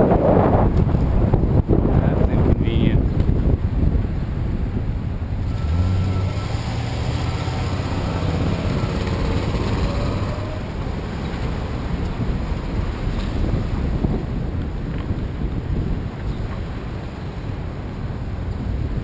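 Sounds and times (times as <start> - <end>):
traffic: 0.0 - 19.0
wind noise on microphone: 0.0 - 19.0
truck engine running: 5.3 - 12.8.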